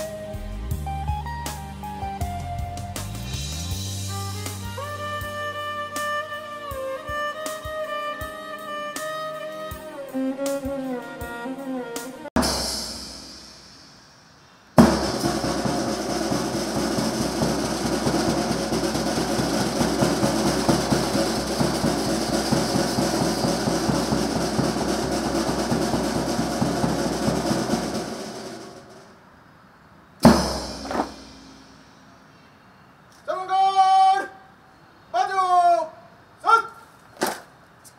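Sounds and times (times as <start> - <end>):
snare drum roll: 12.0 - 13.9, 14.8 - 29.2, 30.2 - 31.9
sharp cracks: 37.1 - 37.6.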